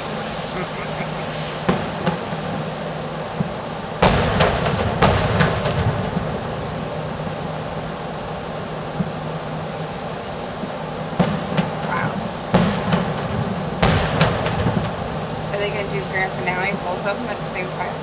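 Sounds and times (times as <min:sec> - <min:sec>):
fireworks booming: 0:00.0 - 0:18.0
steady background hiss: 0:00.0 - 0:18.0
small firework cracks: 0:03.4 - 0:06.5, 0:12.5 - 0:15.1.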